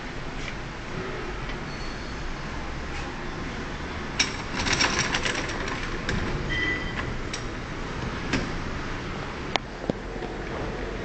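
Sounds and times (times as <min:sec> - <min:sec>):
steady background noise: 0:00.0 - 0:11.0
metal rattling: 0:04.2 - 0:07.0.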